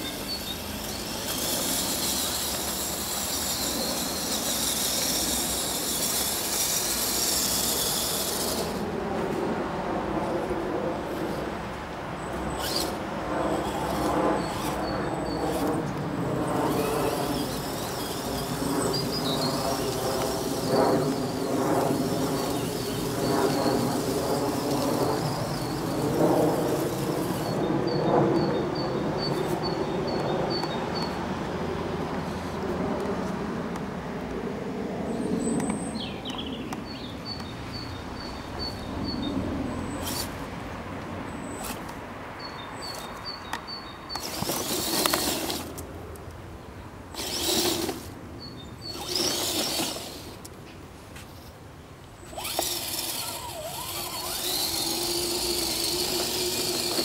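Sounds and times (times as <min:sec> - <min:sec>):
toy truck motor whining: 0:00.0 - 0:08.8, 0:12.5 - 0:27.6, 0:40.0 - 0:40.4, 0:44.2 - 0:45.8, 0:47.1 - 0:48.2, 0:48.8 - 0:50.5, 0:52.2 - 0:57.0.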